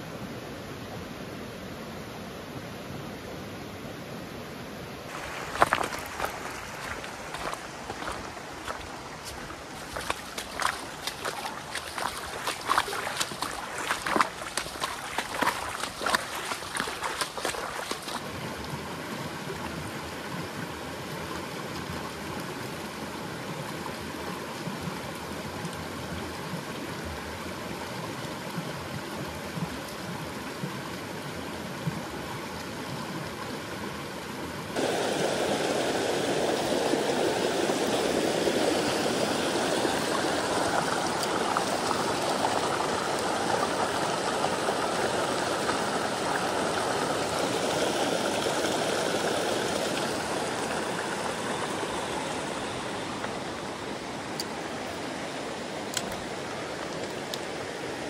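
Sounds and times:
stream running over rocks: 0:00.0 - 0:58.0
small cascade rushing: 0:05.1 - 0:26.4, 0:34.7 - 0:58.0.

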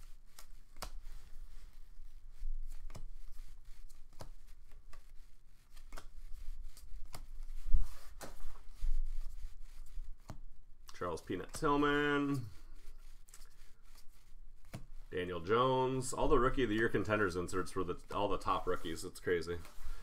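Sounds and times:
trading cards snapping: 0:05.8 - 0:06.1.

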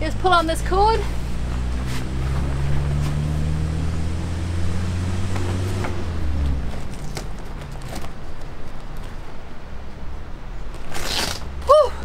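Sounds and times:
low engine drone: 0:00.0 - 0:08.3.

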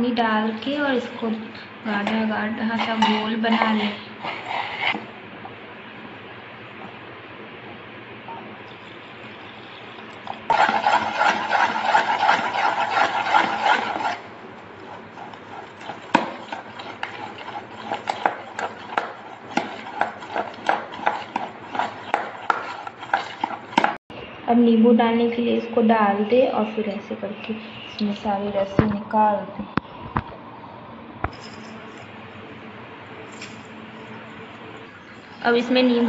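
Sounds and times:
spoon beating batter in metal bowl: 0:01.9 - 0:05.1, 0:10.2 - 0:24.0.

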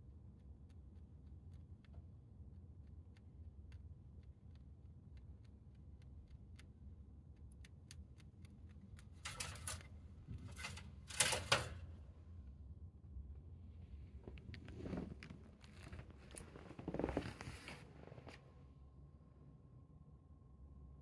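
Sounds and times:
rabbit chewing hay: 0:00.2 - 0:11.8, 0:14.1 - 0:18.4.

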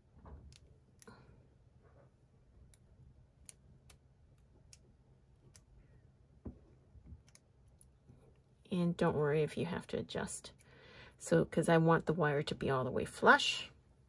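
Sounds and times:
pliers clicking on wire: 0:02.6 - 0:05.8, 0:07.2 - 0:07.9.

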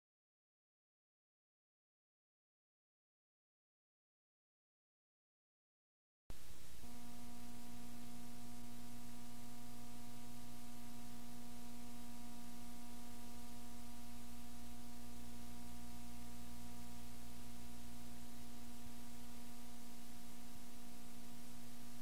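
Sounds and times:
constant hiss: 0:06.3 - 0:22.0
low mains hum: 0:06.3 - 0:22.0
steady electrical buzz: 0:06.3 - 0:22.0.

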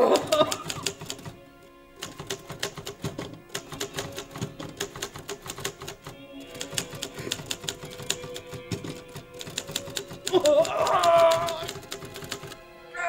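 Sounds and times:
typewriter keys clacking: 0:00.0 - 0:01.4, 0:02.0 - 0:12.6
background music: 0:00.0 - 0:13.0.

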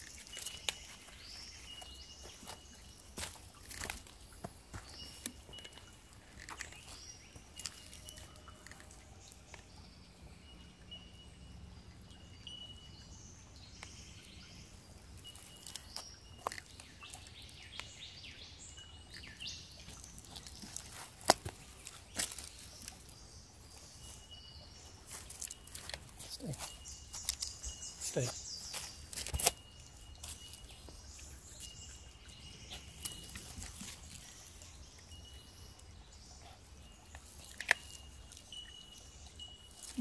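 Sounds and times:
twigs snapping: 0:00.0 - 0:01.2, 0:03.2 - 0:09.0, 0:15.3 - 0:17.9, 0:19.1 - 0:23.1, 0:25.1 - 0:27.7, 0:28.6 - 0:30.6, 0:37.1 - 0:38.5
footsteps crunching on forest track: 0:00.0 - 0:09.4, 0:15.1 - 0:18.4, 0:19.0 - 0:35.2
birds calling with whistled notes: 0:00.0 - 0:40.0.

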